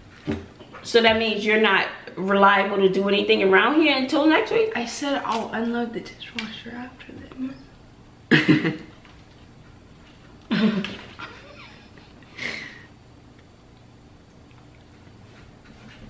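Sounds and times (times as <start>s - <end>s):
person laughing: 10.5s - 12.8s.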